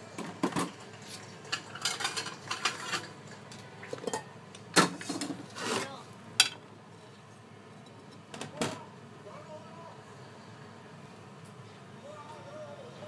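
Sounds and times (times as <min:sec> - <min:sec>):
plate scraping on metal drainer: 0:05.0 - 0:05.9.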